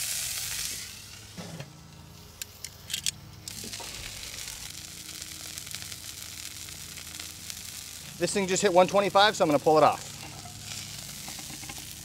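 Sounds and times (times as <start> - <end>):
steak sizzling in skillet: 0.0 - 1.4, 3.5 - 12.0
grill lid closing: 1.3 - 1.8.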